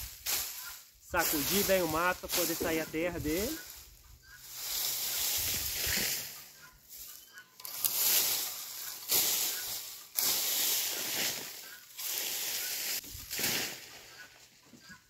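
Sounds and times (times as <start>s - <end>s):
weeds and dry soil scraping: 0.0s - 15.0s.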